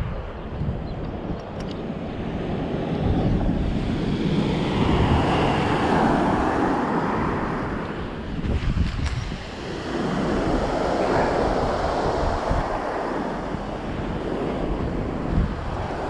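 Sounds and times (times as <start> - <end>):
wind buffeting microphone: 0.0 - 16.0
surf washing on shingle: 4.2 - 16.0.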